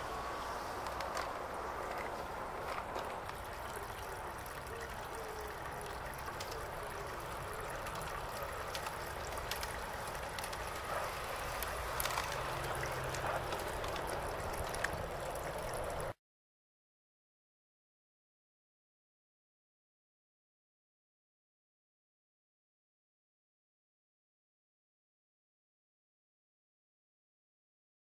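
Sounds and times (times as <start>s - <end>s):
steady hiss: 0.0s - 16.1s
train wheels clicking on rails: 8.5s - 15.0s.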